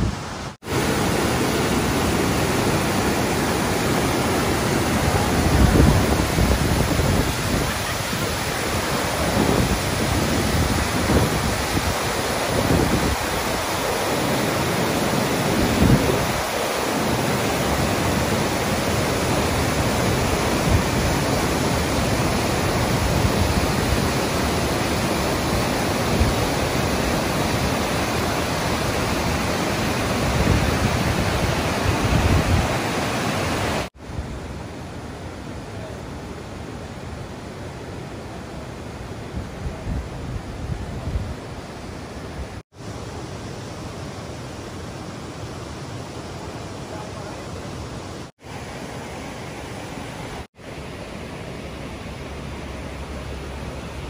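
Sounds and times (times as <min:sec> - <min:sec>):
waterfall rushing through gorge: 0:00.0 - 0:34.0
wind buffeting microphone: 0:05.2 - 0:13.8, 0:15.4 - 0:16.6, 0:30.0 - 0:33.0.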